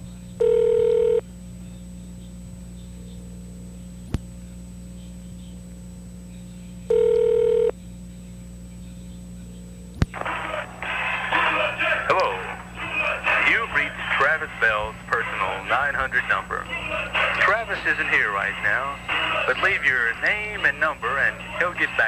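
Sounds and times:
phone line hum and hiss: 0:00.0 - 0:22.0
telephone ringing down a line: 0:00.4 - 0:01.2, 0:06.9 - 0:07.7.

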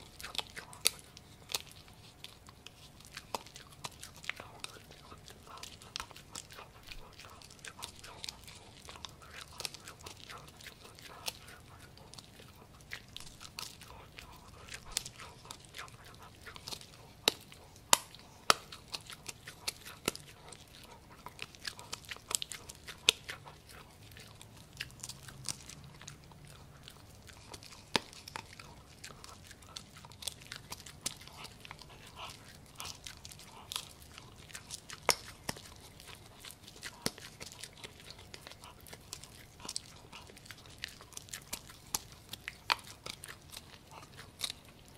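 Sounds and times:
puppy chewing and crunching: 0:00.0 - 0:44.9.

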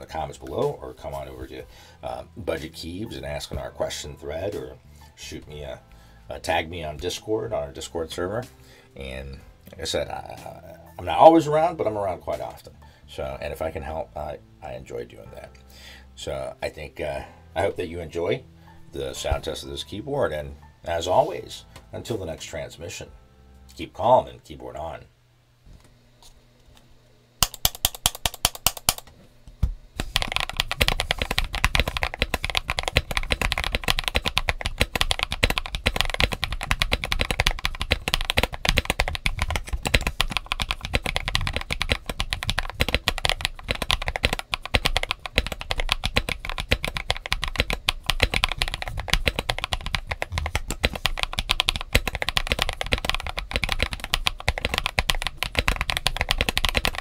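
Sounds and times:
mechanical keyboard typing: 0:27.4 - 0:29.1, 0:30.0 - 0:57.0.

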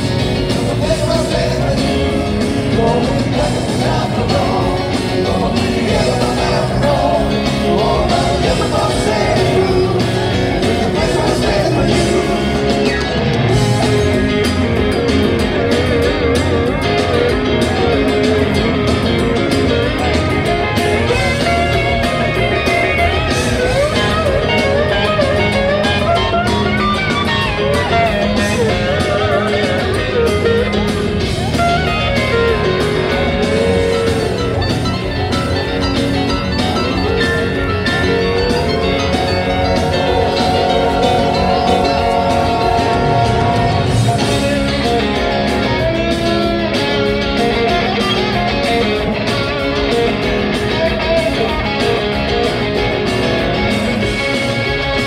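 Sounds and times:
drums: 0:00.0 - 0:55.0
electric guitars: 0:00.0 - 0:55.0
person singing: 0:00.5 - 0:12.9, 0:39.0 - 0:44.4.

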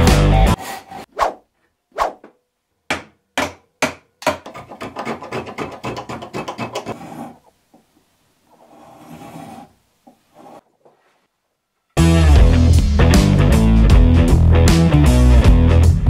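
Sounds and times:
spokeshave shaving wood: 0:04.4 - 0:07.5, 0:08.5 - 0:10.6.

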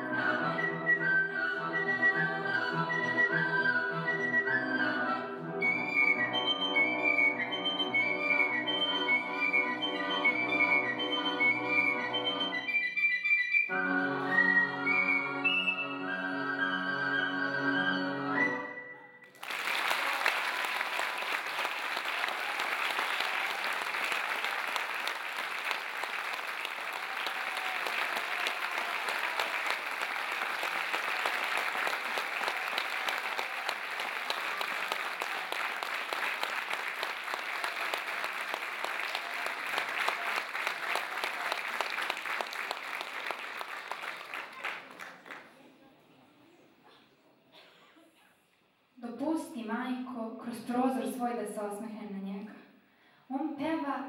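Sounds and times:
audience applause: 0:19.2 - 0:45.6.

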